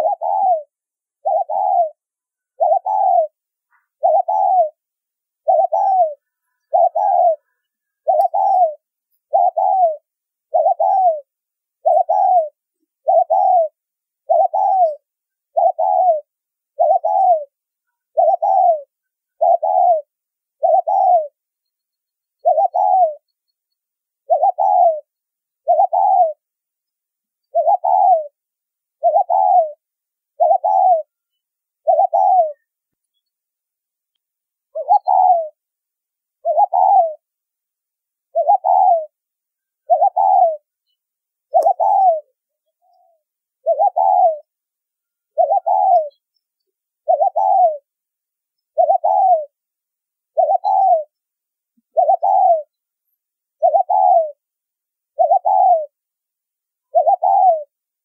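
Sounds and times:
dove cooing: 0.0s - 4.8s, 5.4s - 21.4s, 22.4s - 23.3s, 24.2s - 26.4s, 27.5s - 28.4s, 29.0s - 29.8s, 30.4s - 31.2s, 31.8s - 32.7s, 34.7s - 35.6s, 36.4s - 37.3s, 38.3s - 39.2s, 39.8s - 40.7s, 41.5s - 44.5s, 45.3s - 46.2s, 47.0s - 47.9s, 48.7s - 49.6s, 50.3s - 51.2s, 51.8s - 52.8s, 53.6s - 54.4s, 55.1s - 56.0s, 56.9s - 57.8s.

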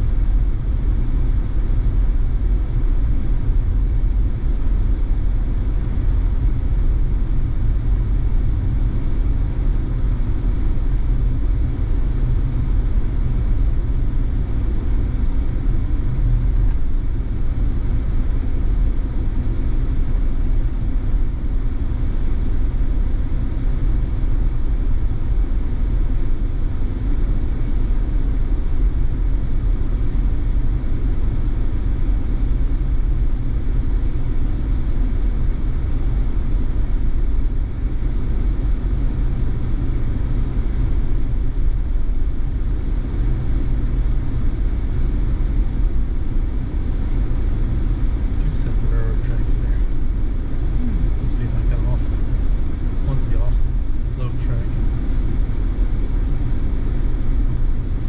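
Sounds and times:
car driving rumble: 48.2s - 55.0s.

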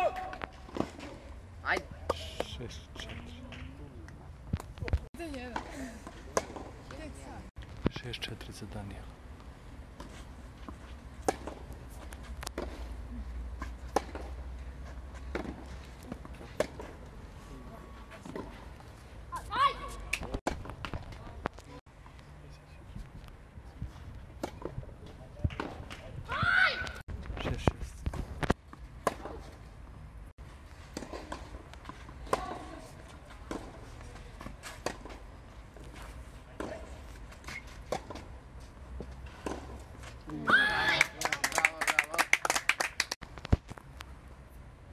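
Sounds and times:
rackets striking tennis ball: 9.9s - 12.9s, 13.6s - 14.5s
tennis ball bouncing: 10.0s - 12.8s, 13.6s - 17.0s.

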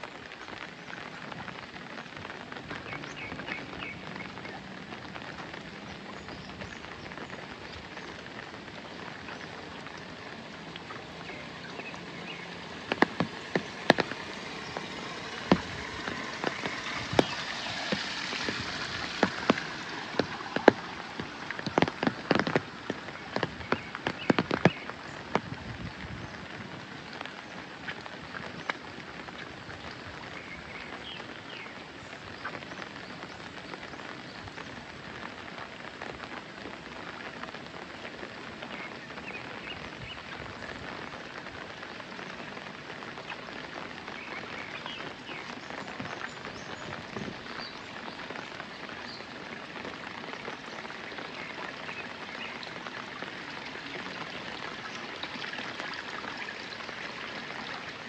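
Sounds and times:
raindrops tapping: 0.0s - 58.0s
steady rain hiss: 0.0s - 58.0s.

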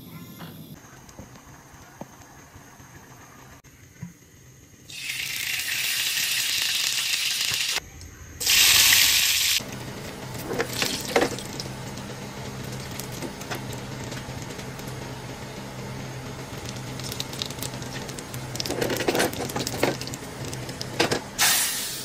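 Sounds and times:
garlic frying in oil: 4.9s - 7.8s, 10.4s - 21.8s
low hum: 7.8s - 21.4s.

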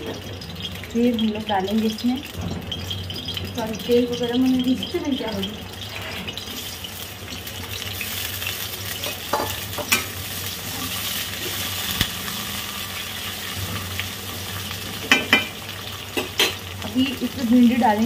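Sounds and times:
onions sizzling in oil: 0.0s - 18.0s.

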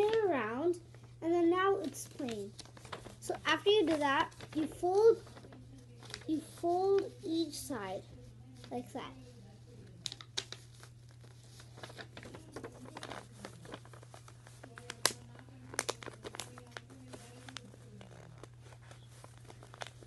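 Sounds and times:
paper crinkling and rustling: 0.0s - 20.0s
paper clicks and snap: 10.0s - 10.8s, 11.8s - 17.7s.

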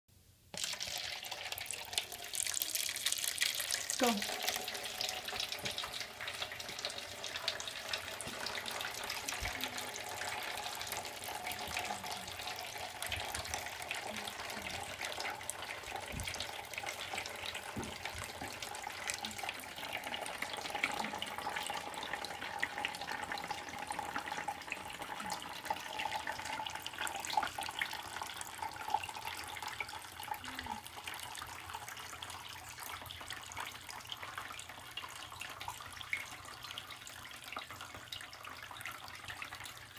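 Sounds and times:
water trickling: 0.5s - 39.9s
water drip ticks: 1.6s - 39.9s.

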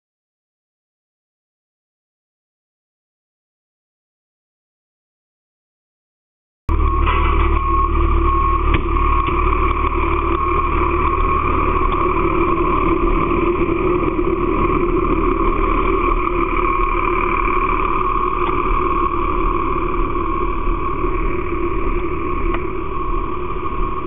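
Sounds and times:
fire engine droning: 6.7s - 24.0s.

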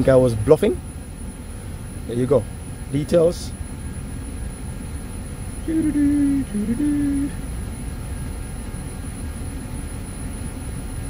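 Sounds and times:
outdoor unit low rumble: 0.0s - 11.0s
man humming: 5.6s - 7.5s.

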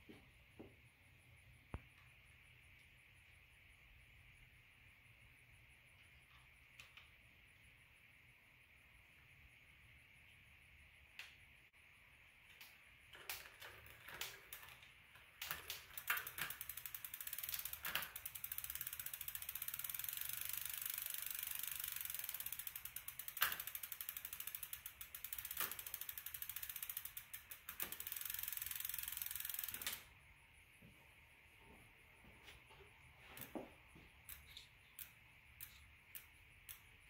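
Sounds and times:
bicycle freehub ticking: 10.7s - 30.2s, 33.4s - 37.0s
loud bicycle clicks: 12.5s - 30.1s, 34.2s - 37.0s
bicycle chain running: 13.1s - 30.1s.

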